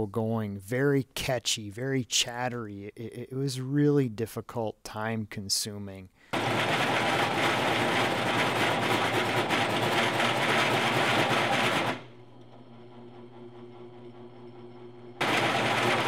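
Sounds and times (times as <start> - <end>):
drill press motor humming: 6.3 - 16.0.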